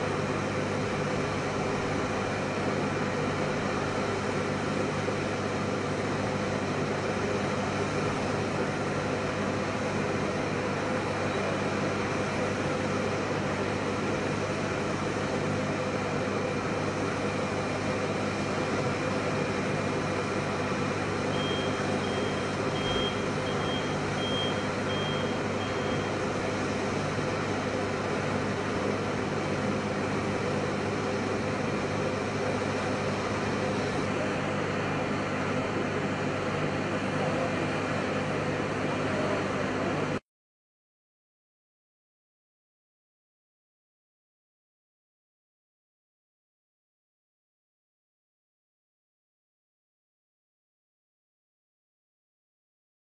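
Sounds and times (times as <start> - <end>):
forklift reversing alarm beeps: 21.3 - 26.2.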